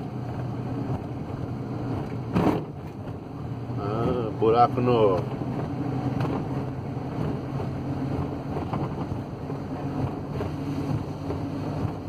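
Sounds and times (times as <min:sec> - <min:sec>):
diesel van engine running: 0:00.0 - 0:12.0
road noise: 0:00.0 - 0:12.0.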